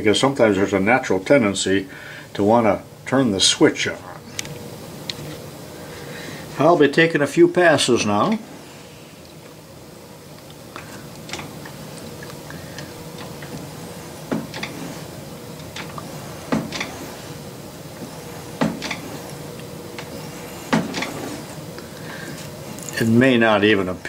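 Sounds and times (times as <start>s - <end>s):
lathe carriage thunking against stop: 14.2s - 17.2s, 18.0s - 19.2s, 20.0s - 21.5s.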